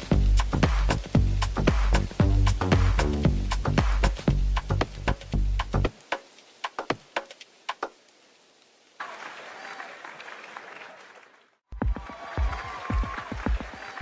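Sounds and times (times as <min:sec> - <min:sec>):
electronic dance beat: 0:00.0 - 0:05.8, 0:11.7 - 0:14.0
crowd applause: 0:09.0 - 0:14.0.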